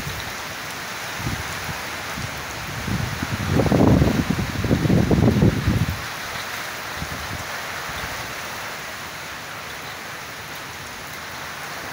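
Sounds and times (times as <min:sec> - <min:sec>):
gusty wind: 0:00.0 - 0:08.6
heavy rain: 0:00.0 - 0:11.9.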